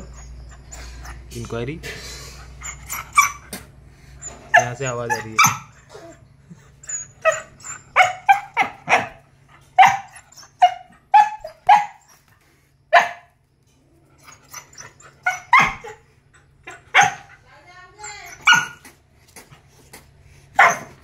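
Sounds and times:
dog barking: 4.5 - 5.8, 7.2 - 9.2, 9.8 - 12.1, 12.9 - 13.3, 15.2 - 16.0, 16.9 - 17.4, 18.2 - 18.8, 20.6 - 21.0.

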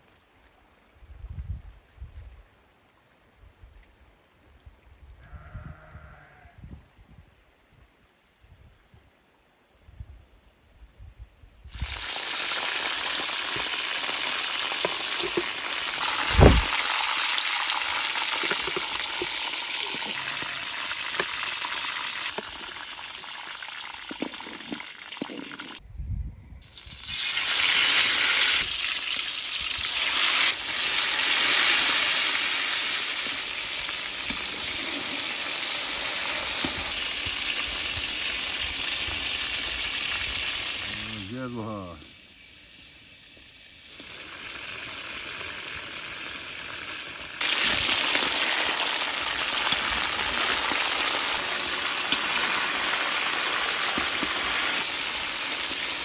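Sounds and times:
meat sizzling in hot oil: 11.7 - 25.8, 26.6 - 41.1, 42.4 - 56.0.

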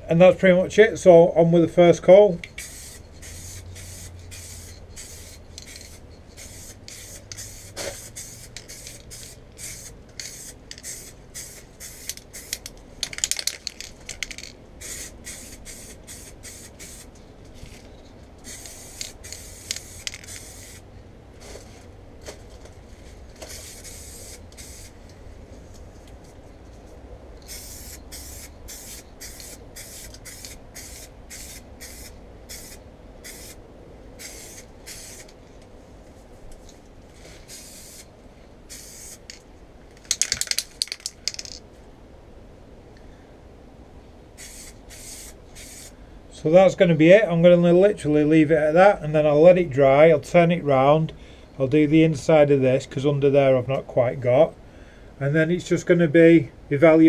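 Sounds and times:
aerosol can spraying: 2.5 - 12.7, 14.4 - 17.1, 18.4 - 20.8, 23.4 - 25.0, 27.4 - 33.6, 34.2 - 35.4, 37.4 - 38.1, 38.7 - 39.4, 44.4 - 45.9.

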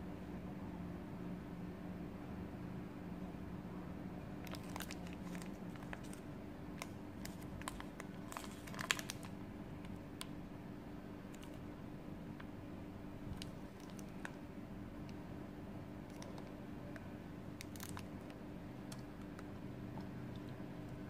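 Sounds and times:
faint low hum: 0.0 - 21.0
foil wrapper crinkling: 4.4 - 9.3, 13.3 - 14.4, 16.1 - 16.5, 17.6 - 19.0.

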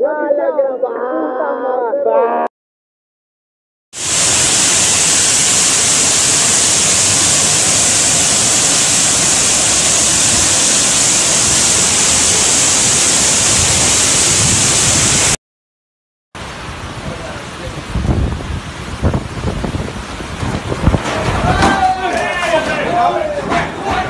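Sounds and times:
floodwater rushing down channel: 4.0 - 15.4, 16.4 - 24.0.

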